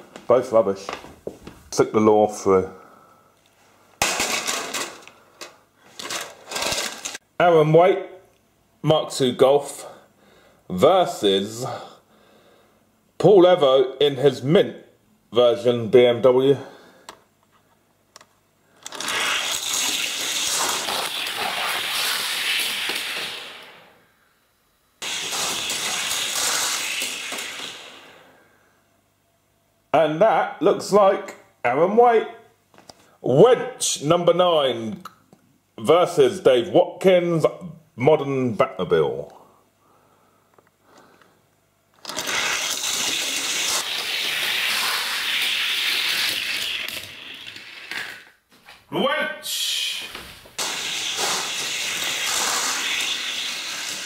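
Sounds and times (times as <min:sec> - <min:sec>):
toy cars rolling on plastic track: 0:04.1 - 0:07.2, 0:18.8 - 0:23.7, 0:25.0 - 0:28.0, 0:42.0 - 0:48.4, 0:50.6 - 0:54.0.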